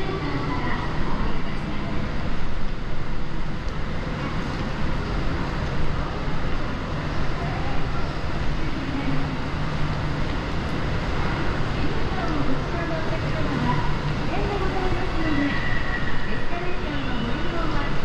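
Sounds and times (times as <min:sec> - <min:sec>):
indoor public space ambience: 0:00.0 - 0:18.0.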